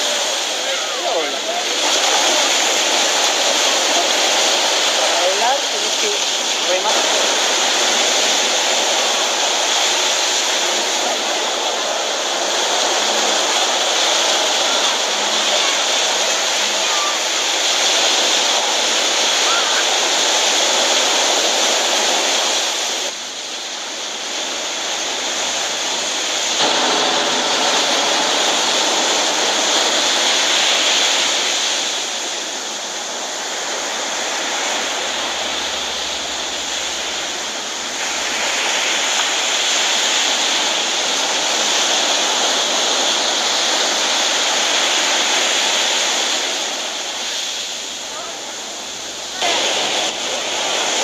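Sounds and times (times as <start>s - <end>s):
ocean surf breaking on beach: 0.0s - 51.0s.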